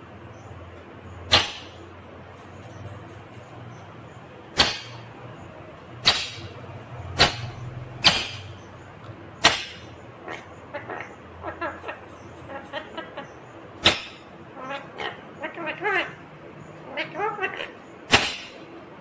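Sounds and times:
parakeet soft chattering calls: 4.6s - 18.6s.

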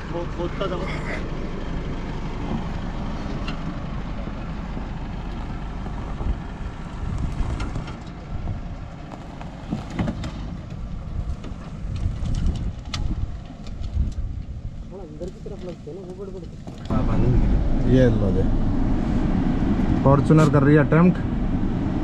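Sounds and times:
diesel engine running low: 0.0s - 22.0s
wind on microphone: 6.2s - 8.8s, 11.0s - 14.9s.

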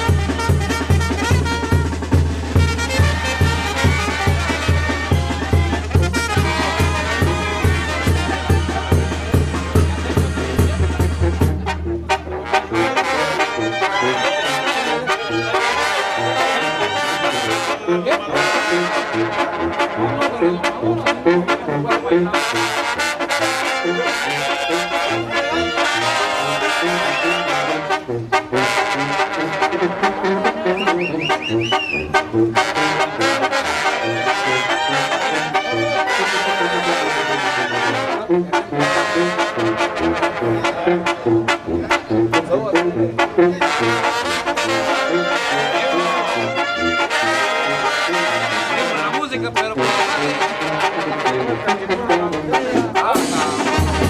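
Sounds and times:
street brass band playing: 0.0s - 54.0s
sousaphone bass line: 2.8s - 11.7s.

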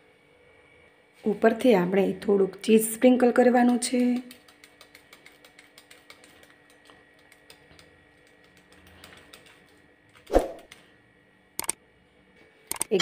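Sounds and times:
cheese grating on steel grater: 3.7s - 7.5s
sharp clicks: 12.7s - 13.0s.

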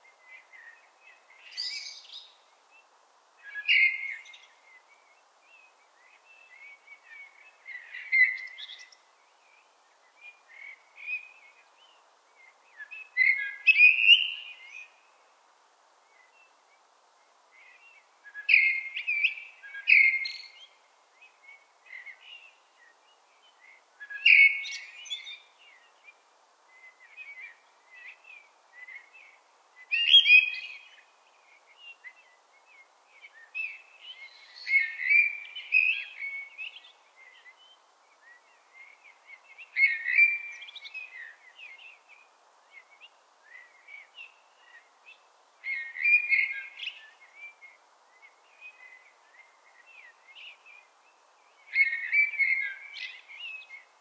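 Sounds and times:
blackbird singing: 3.4s - 4.8s, 5.5s - 15.0s, 17.6s - 20.7s, 21.3s - 26.2s, 26.8s - 54.0s.

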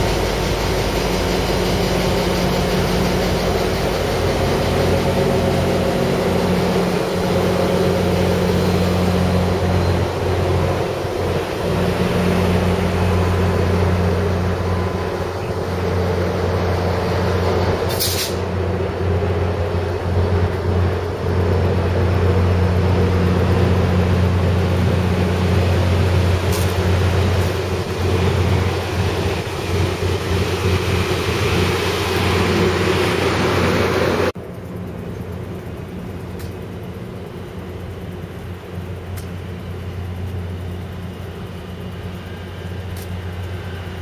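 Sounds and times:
diesel train idling: 0.0s - 44.0s
air hiss: 17.9s - 18.5s.

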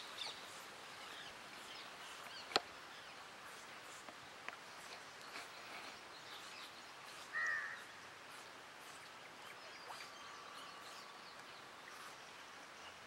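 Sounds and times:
small birds chirping: 0.0s - 13.0s
crow cawing: 7.3s - 7.8s.

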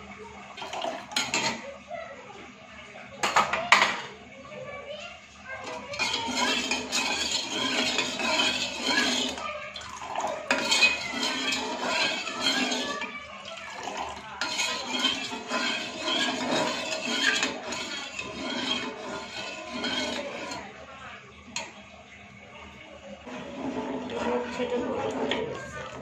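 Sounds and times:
spoon scraping and clinking in pot: 5.6s - 9.4s, 10.2s - 13.1s, 13.7s - 20.7s.

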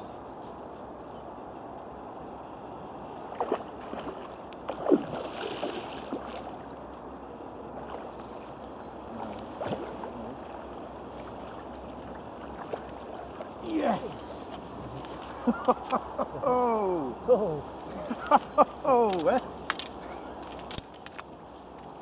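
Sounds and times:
steady background noise: 0.0s - 22.0s
fish splashing in water: 3.4s - 6.6s.

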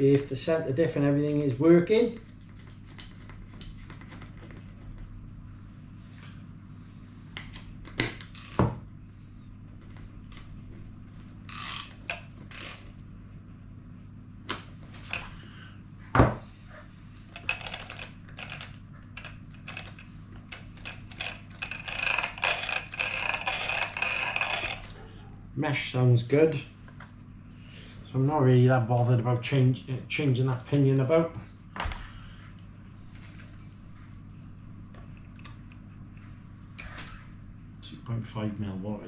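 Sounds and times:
gears turning with clicking rattle: 11.5s - 12.9s, 17.3s - 25.0s.

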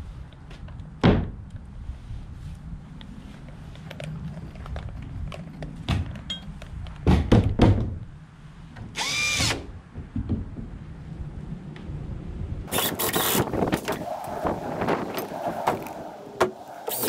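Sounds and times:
cordless drill burst: 9.0s - 9.6s, 12.7s - 13.5s.

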